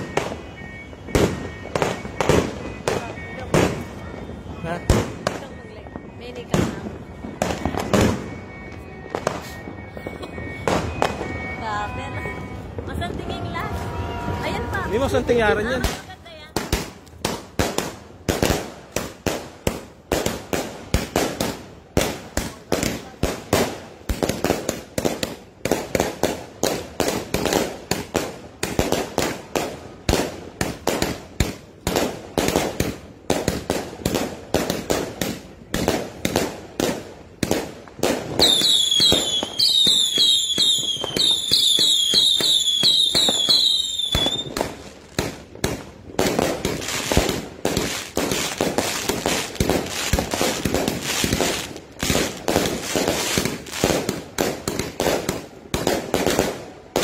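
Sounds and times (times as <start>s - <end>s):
falling fireworks whistles: 0.0s - 16.1s, 38.1s - 45.6s
fireworks bangs: 0.0s - 57.0s.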